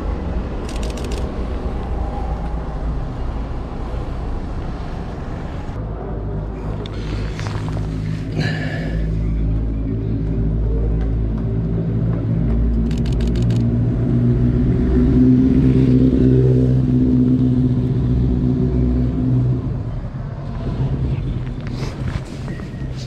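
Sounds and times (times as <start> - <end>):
vehicle engine droning: 0.0 - 23.0
sharp clicks: 0.6 - 1.4, 12.8 - 13.7.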